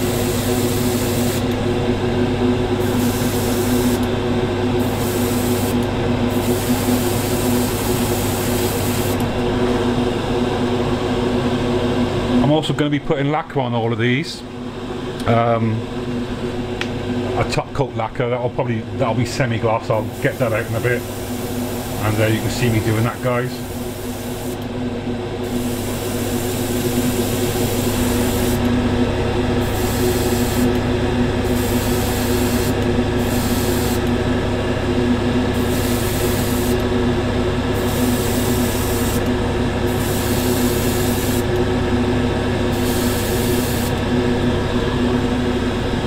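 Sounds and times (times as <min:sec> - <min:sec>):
airbrush spraying hiss: 0:00.0 - 0:01.5, 0:02.8 - 0:04.0, 0:04.8 - 0:09.2, 0:20.0 - 0:22.8, 0:23.6 - 0:24.6, 0:25.5 - 0:28.6, 0:29.6 - 0:30.8, 0:31.5 - 0:34.0, 0:35.6 - 0:36.8, 0:37.8 - 0:39.2, 0:39.9 - 0:41.5, 0:42.8 - 0:44.0
extractor fan hum: 0:00.0 - 0:46.0.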